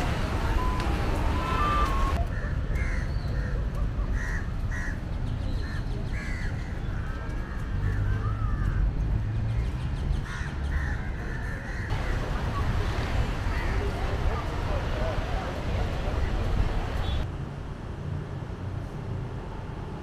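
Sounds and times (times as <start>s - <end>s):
crows cawing: 4.2s - 5.0s.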